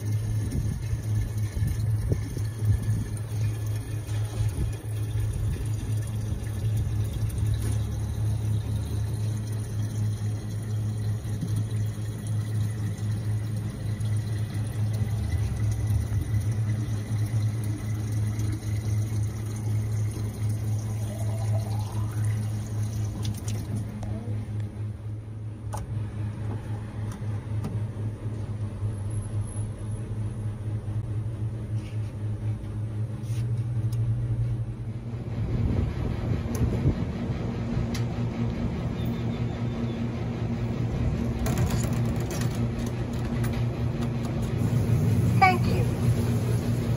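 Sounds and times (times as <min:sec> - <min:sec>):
water pouring into plastic jug: 0:00.0 - 0:24.0
machine humming low: 0:00.0 - 0:46.9.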